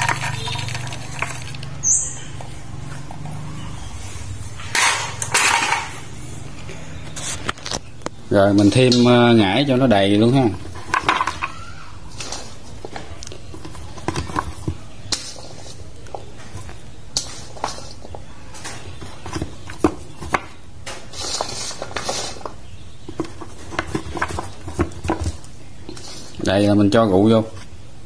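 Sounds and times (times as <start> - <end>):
rustling: 9.9 - 27.8.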